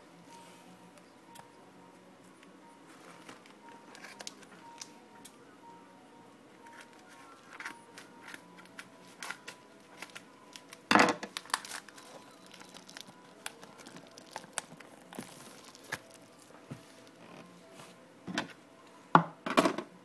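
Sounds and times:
packaging crinkling: 3.2s - 4.9s, 6.7s - 17.5s
wrapping tearing: 3.2s - 4.9s, 6.8s - 17.5s.

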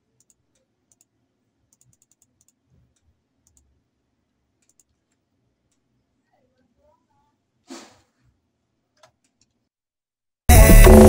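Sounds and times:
computer mouse and keyboard clicks: 0.2s - 3.8s, 4.6s - 5.9s.

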